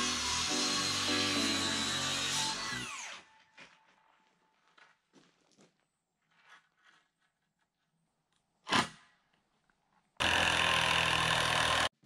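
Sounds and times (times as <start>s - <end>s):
power tool running: 0.0s - 3.4s, 10.2s - 12.0s
faint scraping and handling: 3.6s - 8.5s.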